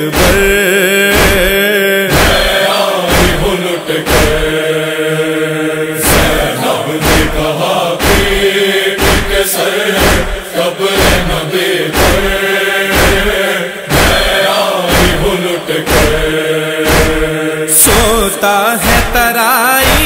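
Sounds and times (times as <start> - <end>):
voices chanting: 0.0 - 19.2
rhythmic chest-beating thumps: 0.0 - 20.0.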